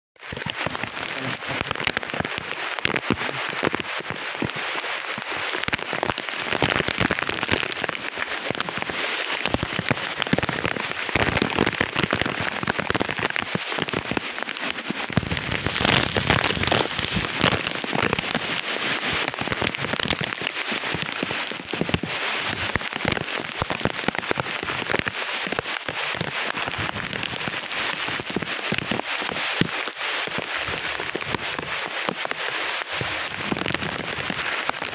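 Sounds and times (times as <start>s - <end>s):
wind gusts: 0.2s - 23.0s
heavy rain on foliage: 0.2s - 34.9s.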